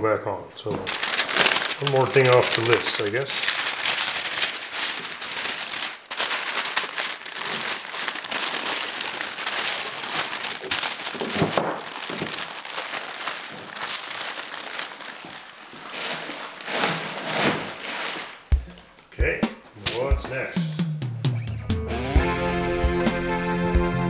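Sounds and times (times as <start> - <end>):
paper crumpling rustle: 0.6 - 18.5.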